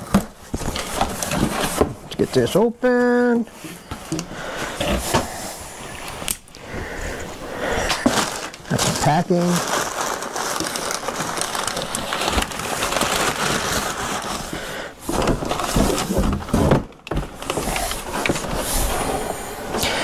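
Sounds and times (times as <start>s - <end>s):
cardboard scraping and knocking: 0.0s - 2.1s, 11.5s - 19.4s
packing paper crinkling: 0.0s - 3.5s, 7.6s - 20.0s.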